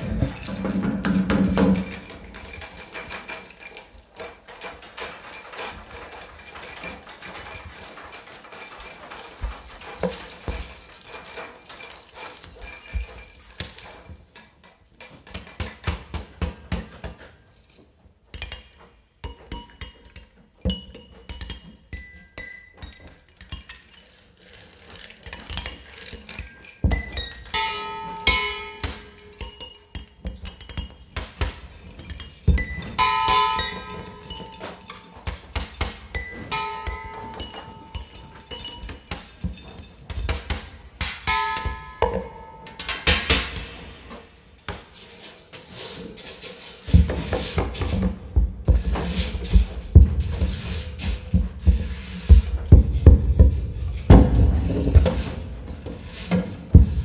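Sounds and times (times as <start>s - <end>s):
clicks knocks and clinks: 0.0s - 57.0s
high ringing tones: 36.2s - 38.9s.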